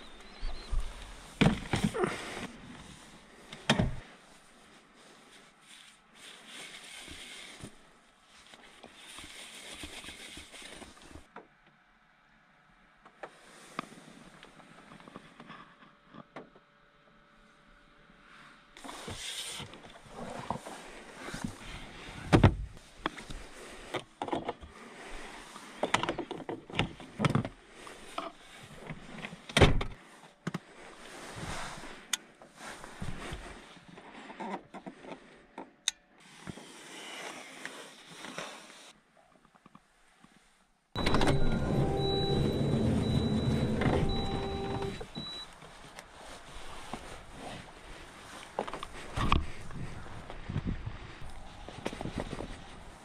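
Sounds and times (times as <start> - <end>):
rustling: 39.9 - 53.0.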